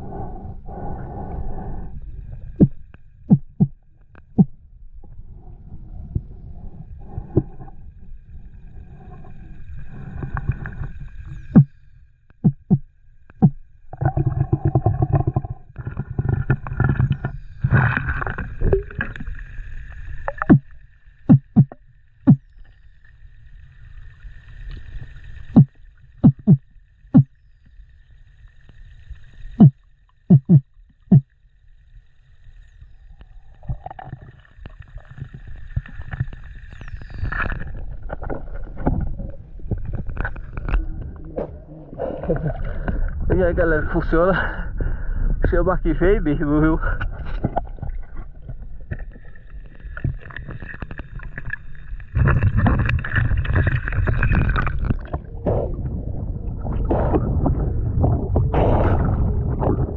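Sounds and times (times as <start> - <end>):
underwater rushing water rumble: 0.0 - 27.3, 27.9 - 59.9
sharp underwater clicks and knocks: 2.6 - 4.6, 12.3 - 19.3, 20.3 - 22.4, 25.5 - 26.6, 29.6 - 31.3.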